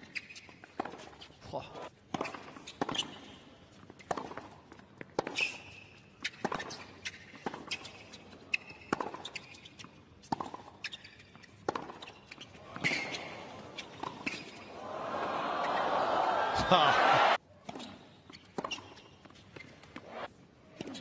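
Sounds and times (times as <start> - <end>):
shoes squeaking on court: 0.0 - 1.4, 2.1 - 16.1, 17.6 - 21.0
racket hitting tennis ball: 11.4 - 12.1.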